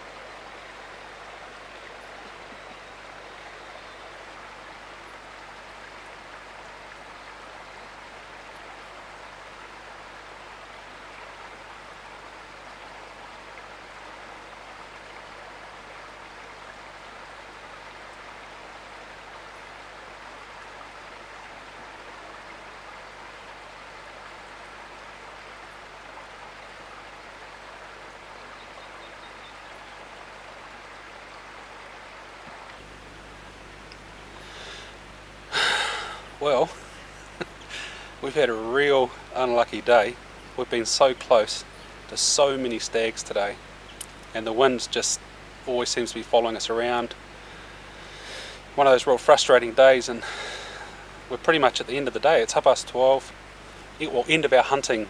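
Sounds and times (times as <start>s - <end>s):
creek water rushing: 0.0s - 55.0s.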